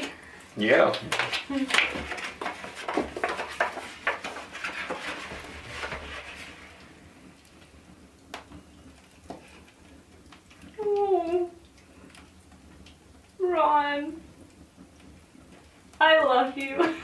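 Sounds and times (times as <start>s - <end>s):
paper rustling and crackling: 0.9s - 6.9s.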